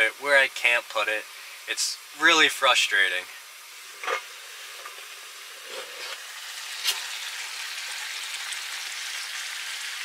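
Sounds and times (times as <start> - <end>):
fish sizzling in a pan: 3.4 - 10.0.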